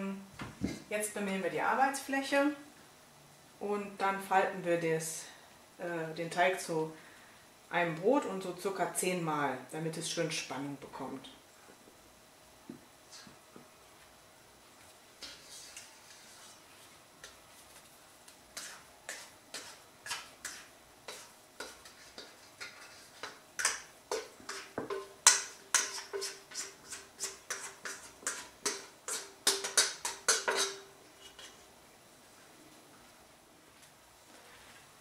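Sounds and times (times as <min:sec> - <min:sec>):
scraper scraping steel bowl: 0:18.6 - 0:25.0, 0:25.7 - 0:31.6.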